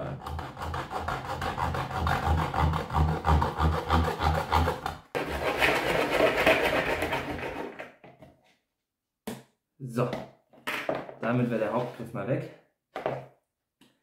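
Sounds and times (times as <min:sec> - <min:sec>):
hand saw cutting plastic: 0:00.0 - 0:07.9.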